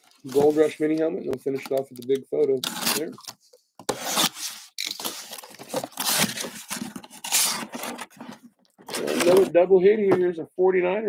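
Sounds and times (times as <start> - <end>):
cardboard and packing tape tearing: 2.6 - 3.3, 3.9 - 9.5.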